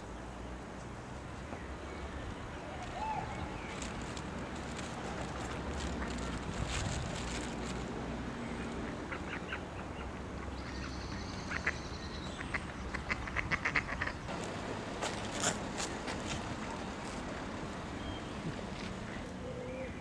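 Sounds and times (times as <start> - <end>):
ducks quacking: 12.5 - 14.2.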